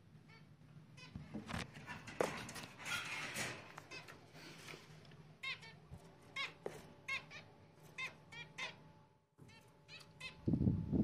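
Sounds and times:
small birds chirping: 5.4 - 10.6.

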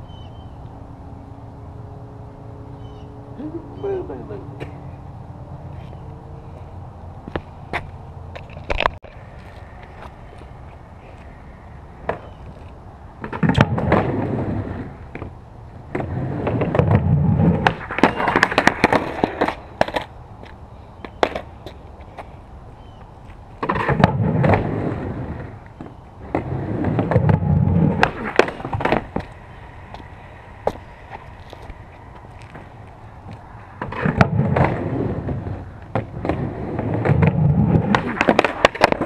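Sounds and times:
skateboard wheels rolling on concrete: 0.0 - 39.0
skateboard clacks: 12.0 - 22.3, 23.6 - 39.0
skateboard grinding on wooden ledge: 13.2 - 15.3, 15.9 - 20.0, 23.6 - 30.0, 33.7 - 39.0.

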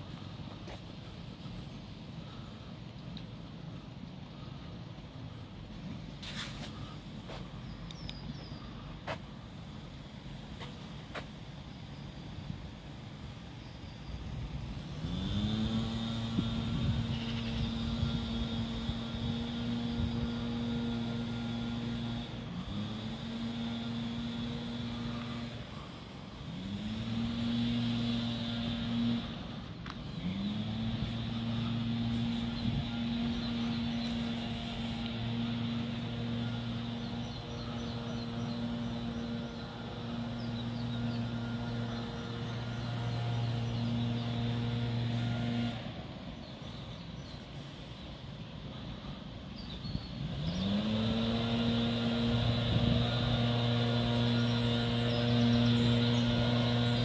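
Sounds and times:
motor humming: 14.2 - 57.0.

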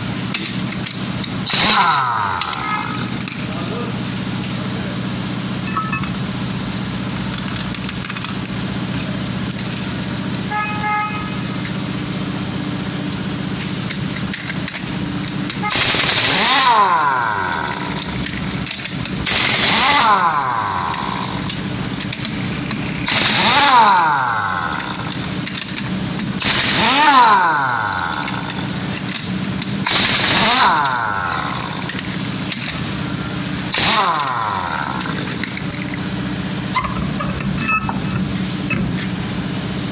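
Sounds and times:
pneumatic impact wrench bursts: 0.2 - 3.6, 13.6 - 36.0.

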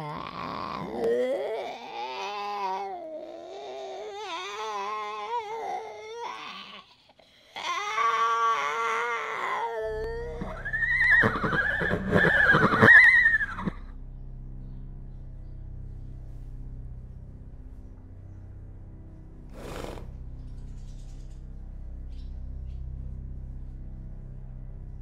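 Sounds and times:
horse whinnying: 9.9 - 13.8
low droning rumble: 13.5 - 25.0.

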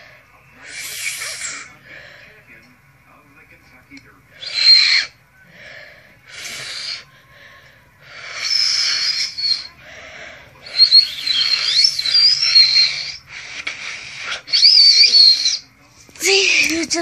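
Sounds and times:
thin high finger whistle: 10.7 - 15.6.

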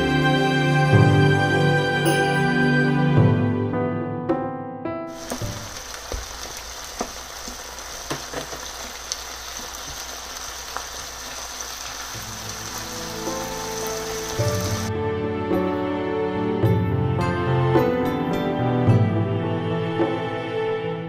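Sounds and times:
vegetables sizzling in a frying pan: 5.1 - 14.9.

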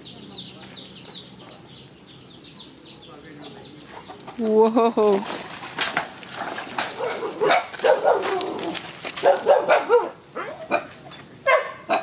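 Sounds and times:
footsteps on dry leaves: 5.1 - 10.1
dogs barking and yelping: 6.4 - 12.0.

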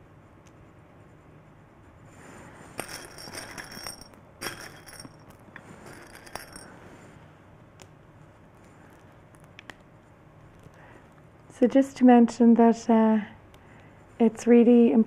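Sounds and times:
craft pieces clinking and rattling: 2.8 - 6.6.

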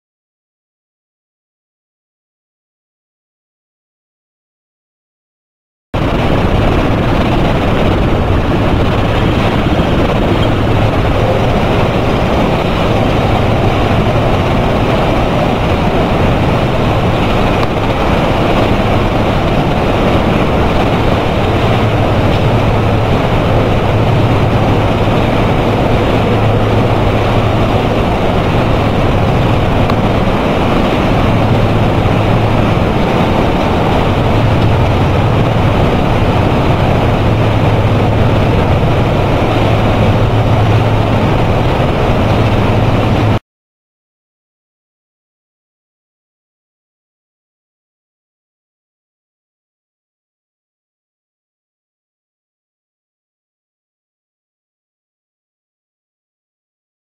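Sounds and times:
low machine hum: 6.0 - 43.4.

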